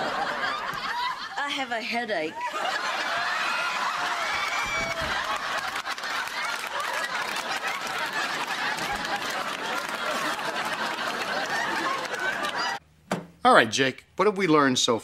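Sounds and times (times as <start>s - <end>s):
audience laughing: 0.0s - 12.8s
people clapping: 3.1s - 12.8s.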